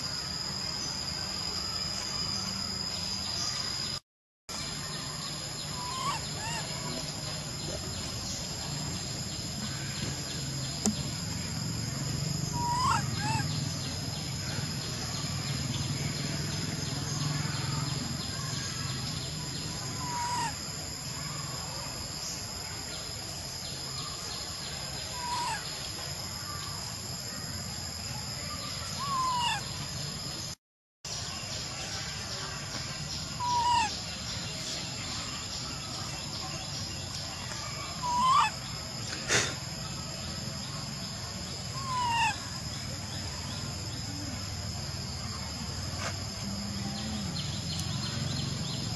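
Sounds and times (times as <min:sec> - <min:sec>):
high-pitched insect drone: 0:00.0 - 0:48.9.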